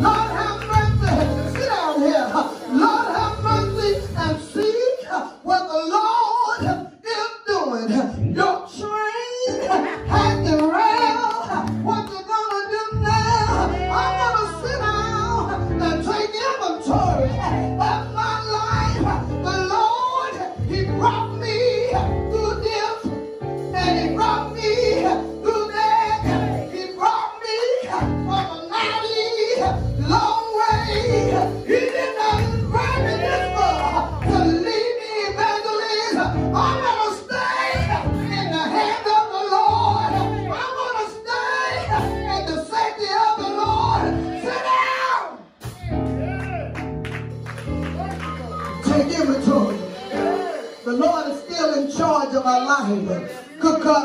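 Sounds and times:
woman singing gospel: 0.0s - 1.6s, 13.2s - 15.4s, 23.8s - 43.2s
keyboard sustained low notes: 0.0s - 1.9s, 2.5s - 4.4s, 9.6s - 12.2s, 12.8s - 16.2s, 16.8s - 26.9s, 29.5s - 34.7s
woman singing gospel song: 0.0s - 3.2s, 13.2s - 15.4s
keyboard: 0.0s - 54.0s
guitar: 20.4s - 42.7s, 45.6s - 54.0s.

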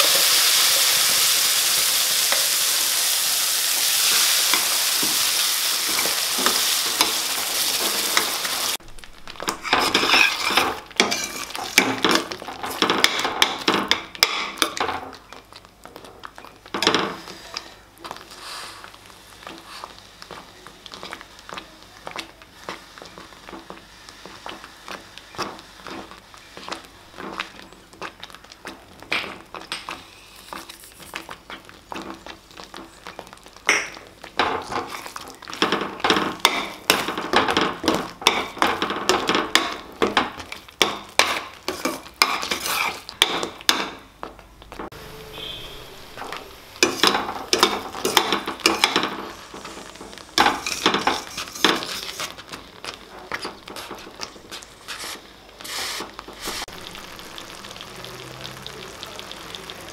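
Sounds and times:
spoon scraping thick paste: 9.5s - 11.8s, 41.2s - 43.1s, 53.3s - 56.7s.

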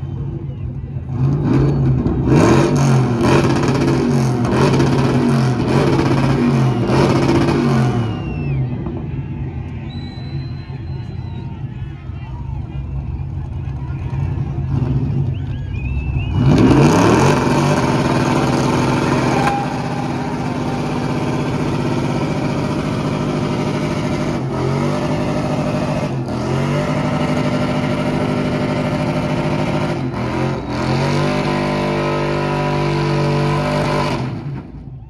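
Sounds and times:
truck engine revving: 0.0s - 11.5s, 12.8s - 35.0s.

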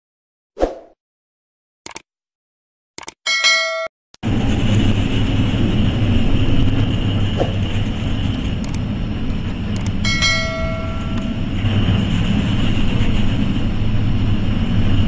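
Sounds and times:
brief clicks: 1.9s - 2.1s
bell-like chime: 3.3s - 3.9s, 10.0s - 11.5s
heavy seas battering ship: 4.2s - 15.0s
storm wind roar: 4.2s - 15.0s.

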